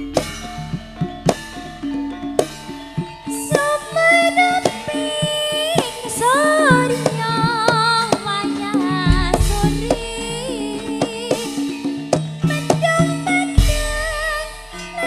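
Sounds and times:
gongs and metallophones: 0.0s - 15.0s
hand drum strokes: 0.0s - 15.0s
woman singing: 3.2s - 15.0s.

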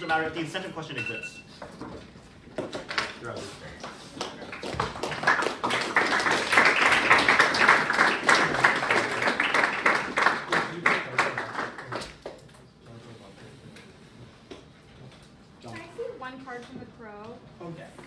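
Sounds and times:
audience applauding: 4.1s - 12.4s.

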